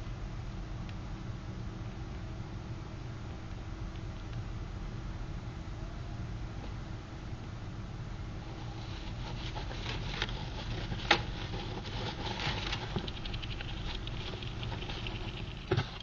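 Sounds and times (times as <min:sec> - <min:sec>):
low steady hum: 0:00.0 - 0:16.0
gerbil scratching: 0:08.5 - 0:16.0.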